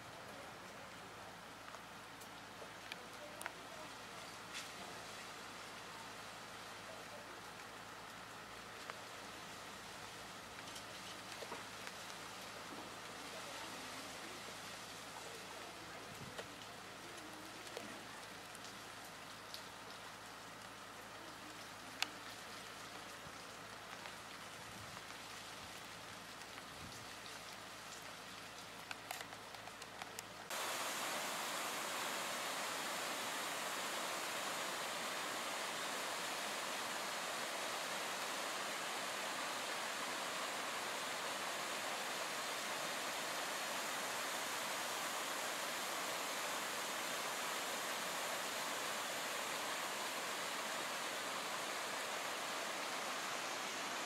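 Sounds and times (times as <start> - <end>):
rain falling: 0.0 - 54.0
raindrop ticks: 0.2 - 4.8, 6.6 - 30.6.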